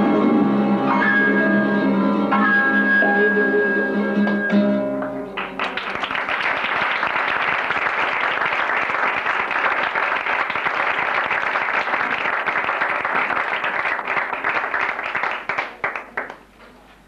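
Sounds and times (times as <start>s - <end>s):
audience applauding: 5.0s - 16.5s.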